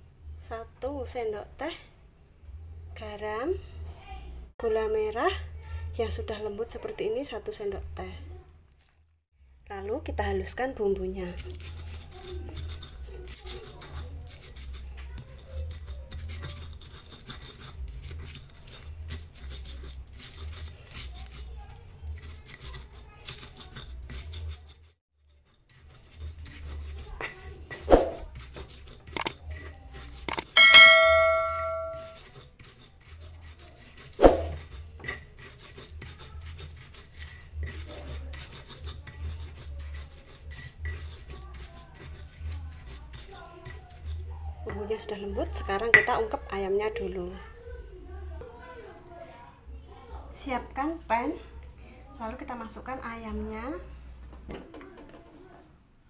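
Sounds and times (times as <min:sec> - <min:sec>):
stone pestle grinding in mortar: 0:11.2 - 0:44.9
loud ringing clang: 0:30.6 - 0:32.1.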